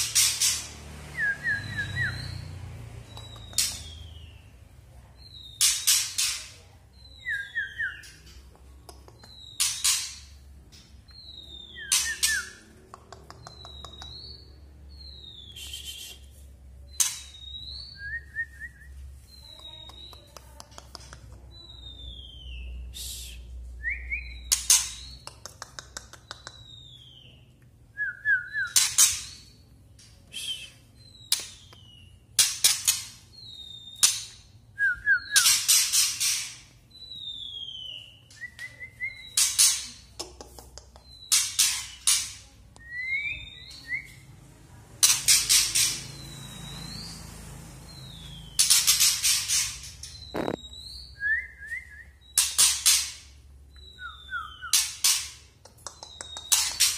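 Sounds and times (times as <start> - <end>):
bird whistles and chirps: 1.1 - 2.5, 15.0 - 20.1, 33.3 - 39.9, 47.9 - 53.1, 53.7 - 55.3, 55.9 - 56.9.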